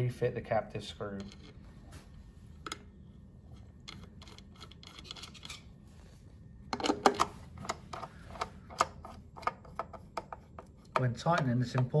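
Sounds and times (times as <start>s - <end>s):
light metal scratching: 3.4s - 6.0s.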